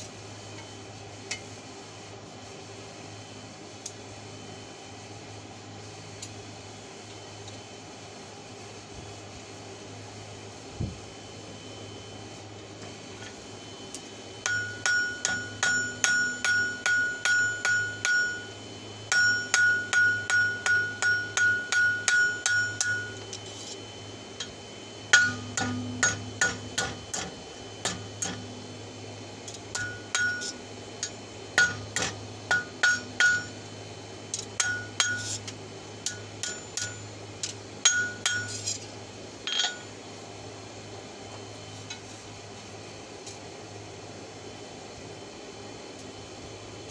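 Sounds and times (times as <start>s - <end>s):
hammer ringing on anvil: 14.4s - 23.4s, 25.1s - 28.5s, 29.7s - 33.6s, 34.4s - 35.4s, 36.0s - 37.1s, 37.8s - 38.8s, 39.5s - 39.9s.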